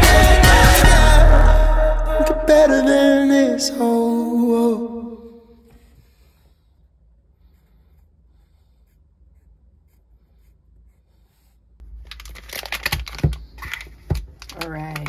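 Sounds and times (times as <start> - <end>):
rustling and clicks of handling: 11.8 - 15.0.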